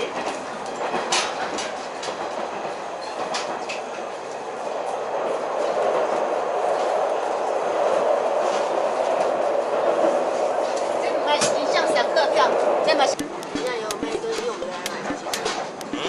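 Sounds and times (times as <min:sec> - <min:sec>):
sharp clicks: 0:13.1 - 0:16.0.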